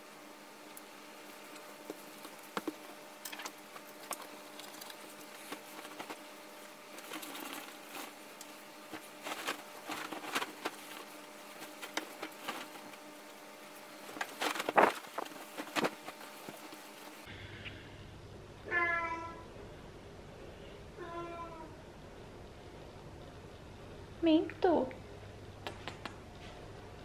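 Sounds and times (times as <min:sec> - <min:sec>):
bedding rustling and flapping: 0:01.3 - 0:17.3.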